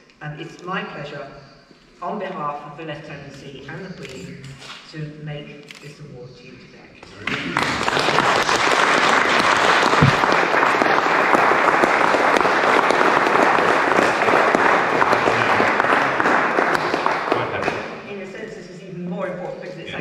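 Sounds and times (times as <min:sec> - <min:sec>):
audience applauding: 0:07.1 - 0:18.0.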